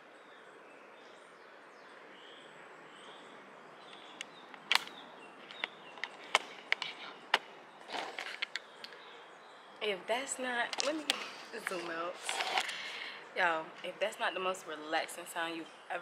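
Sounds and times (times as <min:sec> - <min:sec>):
steady jungle hiss: 0:00.0 - 0:16.0
sharp clicks: 0:03.9 - 0:09.0.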